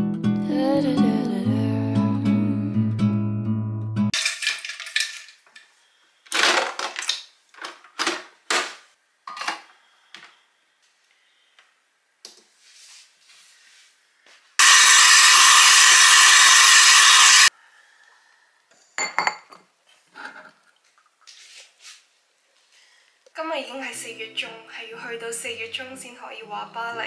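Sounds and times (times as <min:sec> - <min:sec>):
coffee machine frothing milk: 0:14.6 - 0:17.5.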